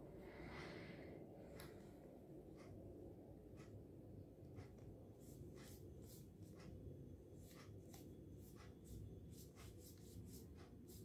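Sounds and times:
paintbrush strokes on leaf: 5.2 - 6.7, 7.3 - 11.0.

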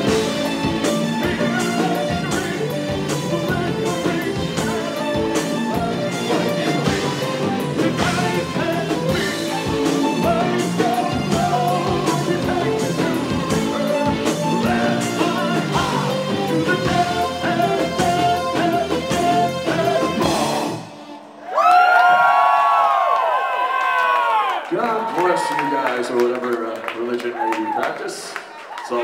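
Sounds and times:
bass guitar: 0.0 - 20.9
drum kit: 0.0 - 20.9
electric guitar: 0.0 - 21.2
person singing: 0.0 - 21.4.

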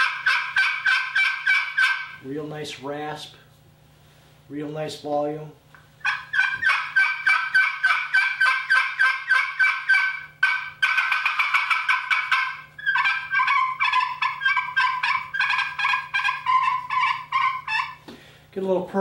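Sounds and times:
friction turkey call raspy notes: 0.0 - 2.6, 5.8 - 18.2.

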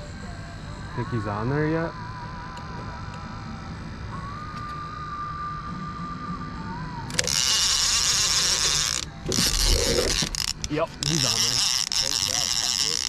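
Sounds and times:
fishing reel clicker ratcheting: 7.1 - 13.0.

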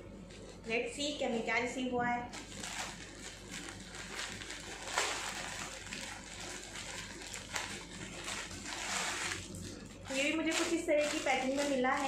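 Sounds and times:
plastic bag rustling and tearing: 2.2 - 12.0.

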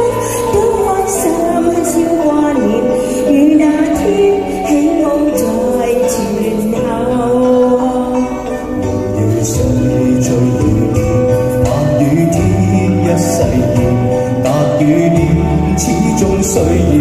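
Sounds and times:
man singing: 0.0 - 7.8, 8.8 - 17.0
woman singing: 0.0 - 11.0
pop backing track: 0.0 - 17.0.

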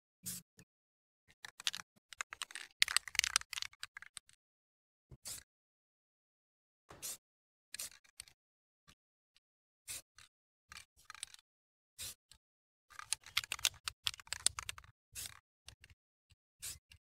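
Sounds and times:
spray can clicking and rattling: 1.6 - 3.8, 13.0 - 15.4.

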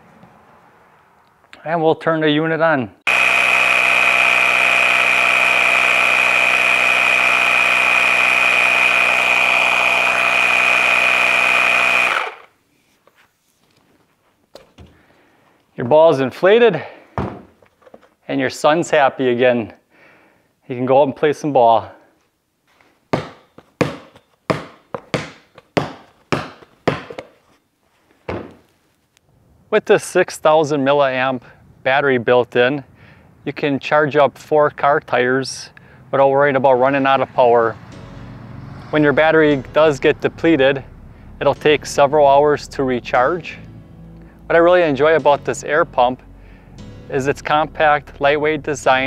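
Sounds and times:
air pump whining: 3.1 - 12.6
basketball bouncing on concrete: 23.1 - 27.4.

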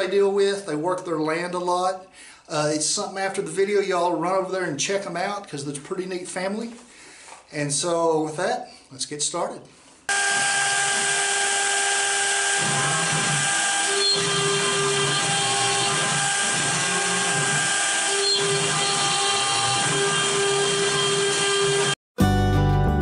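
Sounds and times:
bit cutting wood: 10.1 - 22.0
router spindle whine: 10.1 - 22.0.

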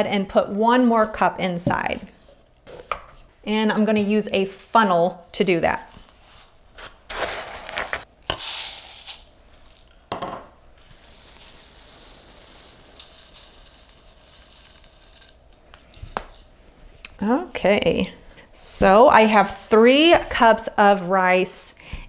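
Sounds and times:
rice pouring through a funnel: 7.5 - 10.1, 10.8 - 16.0
dry rice rattling in a cup: 8.3 - 10.1, 10.8 - 15.5.

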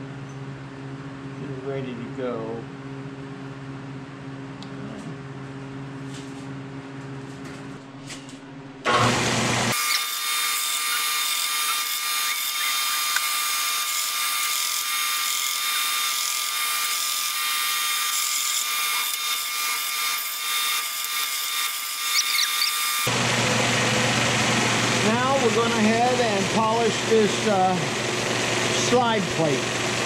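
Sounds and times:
belt sander grinding metal: 8.9 - 23.2.

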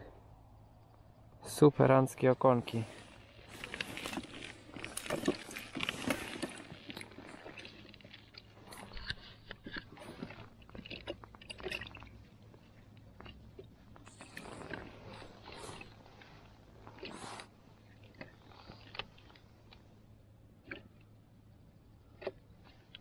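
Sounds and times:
crunching on snowy ice: 2.2 - 19.8.

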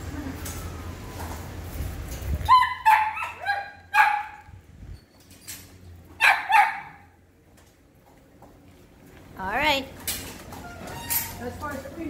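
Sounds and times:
puppy barking in high yips: 2.4 - 4.5, 6.2 - 7.1.

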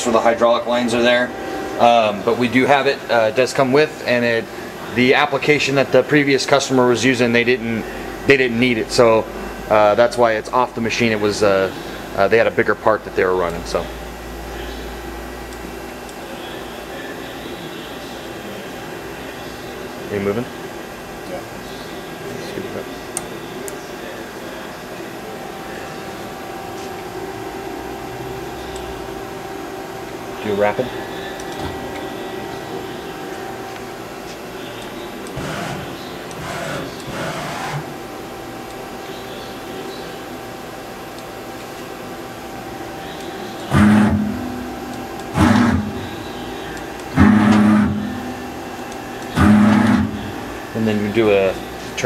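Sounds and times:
high machine whine: 0.0 - 52.0
lathe machine hum: 0.0 - 52.0
lathe turret indexing: 43.7 - 46.2, 46.9 - 50.4.

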